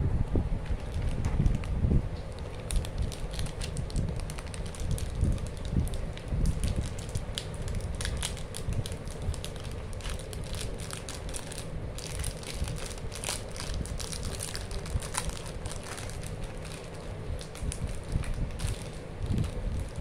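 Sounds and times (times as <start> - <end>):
plastic wrapper crinkling: 0.7 - 20.0
foil being peeled: 0.8 - 20.0.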